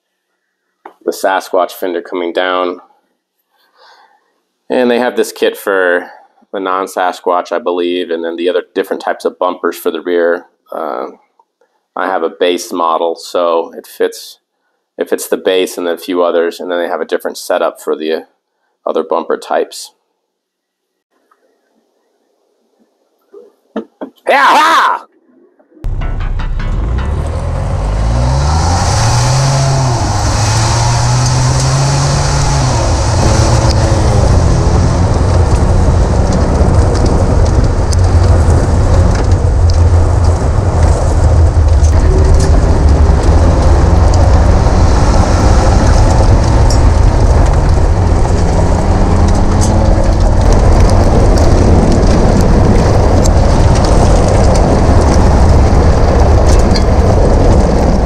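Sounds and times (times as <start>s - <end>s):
engine rising through gear changes: 25.8s - 58.0s
tyre and road roar: 25.8s - 58.0s.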